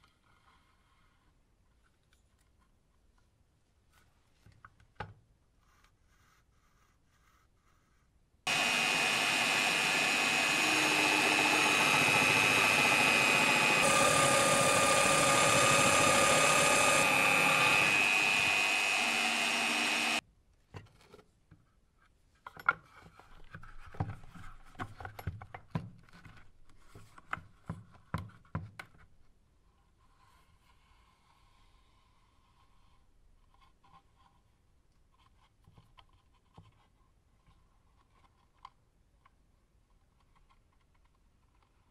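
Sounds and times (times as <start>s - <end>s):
drill press whining: 8.5s - 20.2s.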